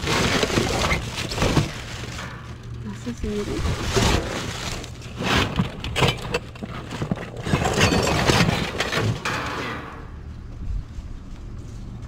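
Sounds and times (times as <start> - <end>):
items knocking and clattering: 0.0 - 2.7, 3.7 - 10.1
plastic bags crinkling: 0.0 - 5.2
low steady hum: 0.0 - 12.0.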